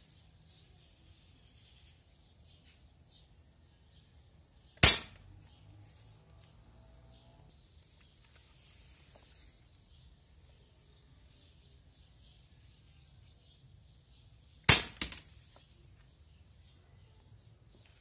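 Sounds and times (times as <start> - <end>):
air rifle shot: 4.8 - 5.2, 14.7 - 15.2
metal target clanking: 4.8 - 5.2, 14.7 - 15.3.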